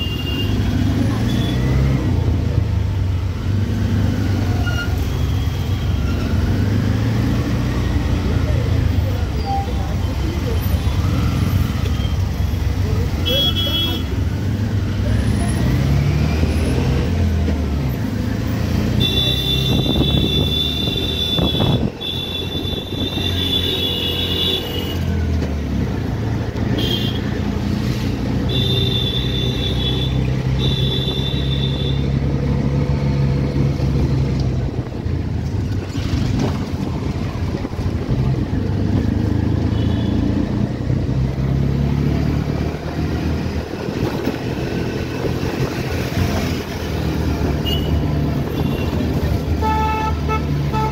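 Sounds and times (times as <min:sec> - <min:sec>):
auto-rickshaw engine running: 0:00.0 - 0:50.9.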